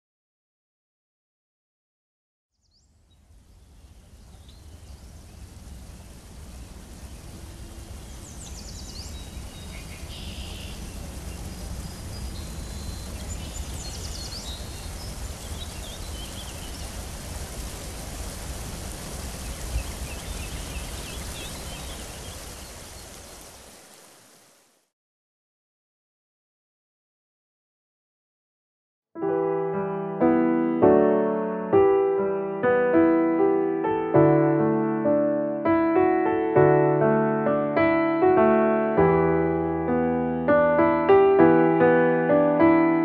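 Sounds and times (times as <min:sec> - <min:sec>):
birds chirping: 0:02.5 - 0:24.1
stream water rushing: 0:03.7 - 0:24.8.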